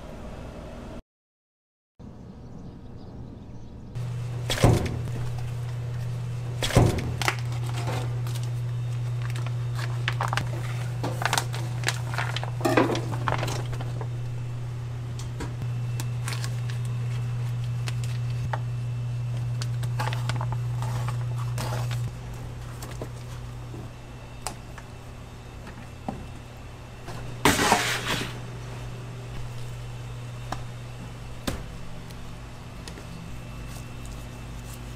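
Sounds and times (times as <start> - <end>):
steady low hum: 2.0 - 34.9
plastic bags rustling: 4.8 - 14.4, 15.9 - 23.9.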